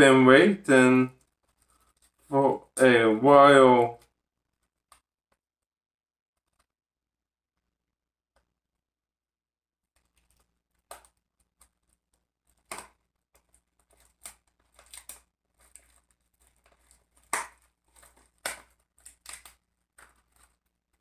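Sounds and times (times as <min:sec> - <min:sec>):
plastic wrap crinkling: 0:01.2 - 0:02.3, 0:10.0 - 0:21.0.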